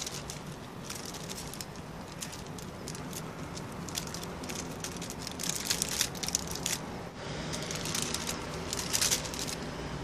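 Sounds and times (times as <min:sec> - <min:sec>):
plastic sheeting crinkling: 0:00.0 - 0:09.7.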